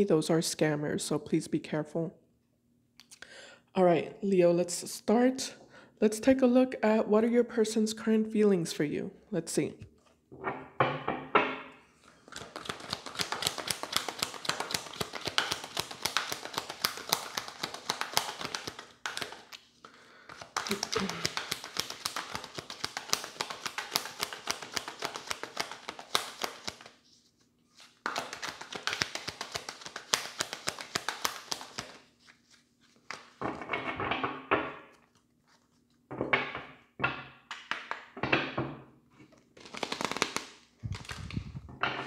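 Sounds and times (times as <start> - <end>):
cards being shuffled: 12.0 - 19.7, 20.3 - 33.7, 34.9 - 36.0, 39.6 - 41.8.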